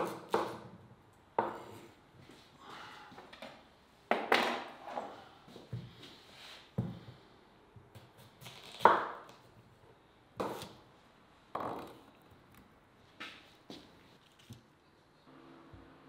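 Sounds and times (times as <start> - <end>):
knife cutting potatoes on wood: 0.0 - 0.8, 10.4 - 10.8.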